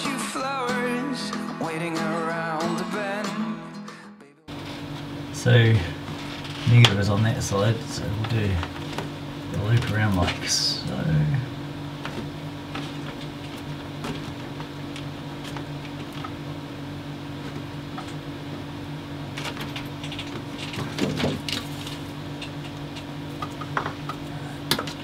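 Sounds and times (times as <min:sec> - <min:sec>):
steady low hum: 0:04.5 - 0:25.0
cable clicks and rustles: 0:06.0 - 0:10.5, 0:12.0 - 0:16.5, 0:19.2 - 0:25.0.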